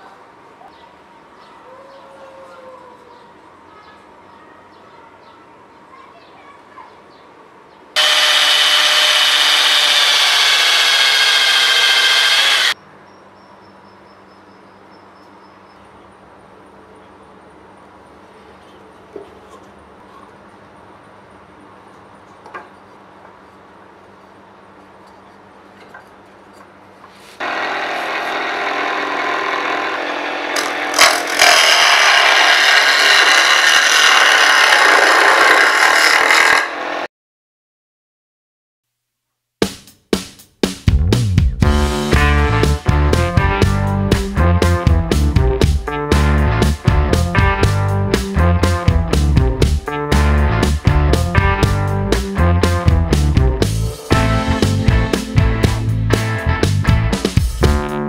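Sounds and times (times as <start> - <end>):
chisel scraping spinning wood: 8.0 - 12.8, 27.4 - 37.0
lathe motor running: 8.0 - 12.8, 27.4 - 37.1
power drill boring into wood: 8.0 - 12.8, 27.4 - 37.1.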